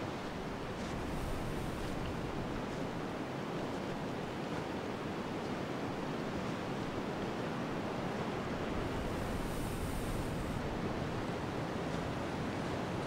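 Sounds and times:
steady wind blowing: 0.0s - 13.0s.

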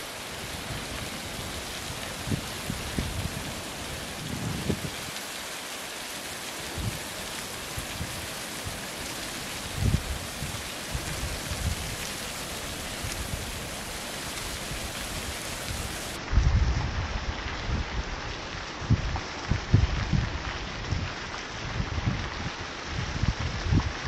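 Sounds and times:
waterfall hiss: 0.0s - 16.2s.

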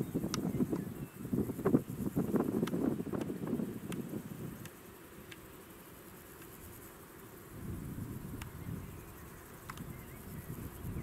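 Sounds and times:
wind buffeting microphone: 0.0s - 4.6s, 7.6s - 11.0s
faint sharp clicks: 0.3s - 0.9s, 3.9s - 5.4s, 8.4s - 8.6s, 9.6s - 9.9s.

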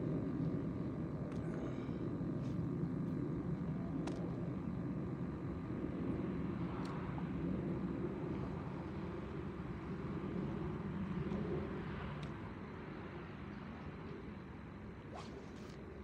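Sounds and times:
low outdoor rumble: 0.0s - 16.0s.

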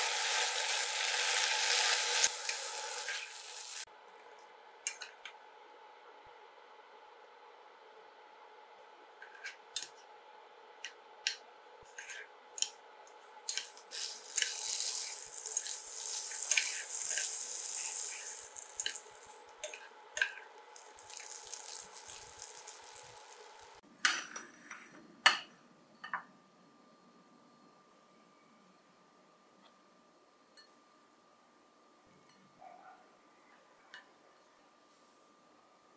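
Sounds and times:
food sizzling in a pan: 0.0s - 3.9s, 13.5s - 23.8s
utensils scraping a pan: 13.5s - 20.4s.

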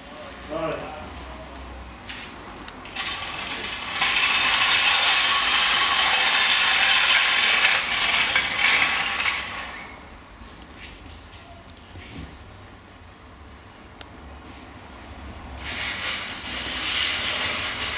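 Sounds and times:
mechanical ratcheting rattle: 2.8s - 9.8s.

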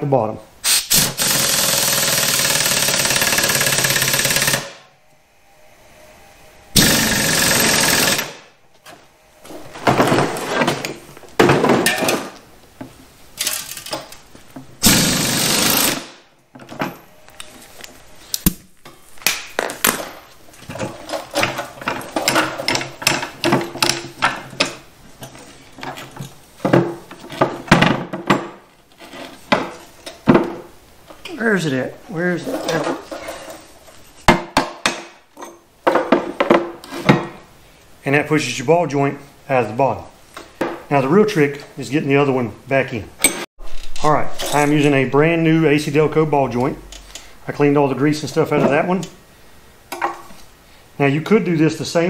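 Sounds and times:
air impact wrench hammering: 0.6s - 4.8s, 6.8s - 8.5s, 14.8s - 16.2s
metal parts clattering: 13.4s - 14.2s.

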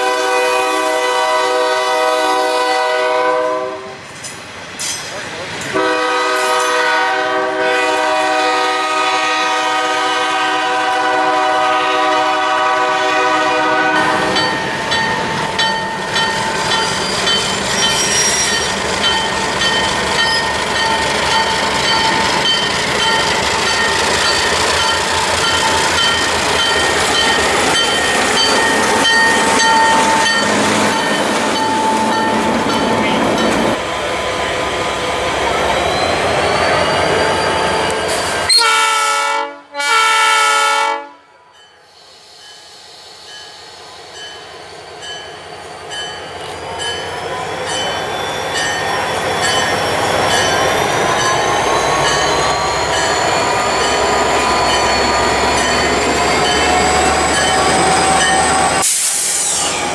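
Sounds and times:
locomotive air horn: 0.0s - 4.0s, 5.7s - 14.4s, 37.8s - 41.3s
diesel locomotive passing: 0.0s - 59.9s
train wheels clattering on rails: 4.0s - 6.9s, 14.1s - 33.8s, 45.0s - 59.9s
wheel squeal: 16.8s - 18.8s, 35.7s - 38.6s, 48.0s - 59.9s.

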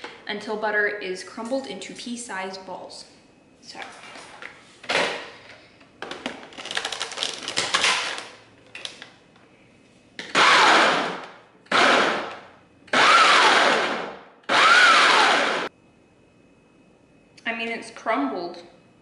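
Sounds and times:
blender pulsing: 10.3s - 15.7s.

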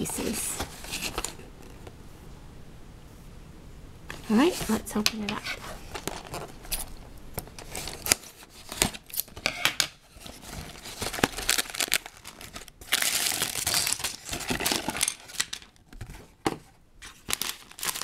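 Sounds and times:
plastic bags crinkling: 4.1s - 16.4s, 17.0s - 18.0s.

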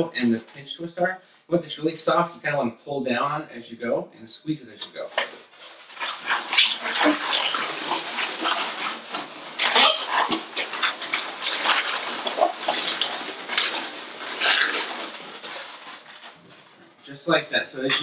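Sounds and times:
balloons squeaking and rubbing: 4.9s - 18.0s.

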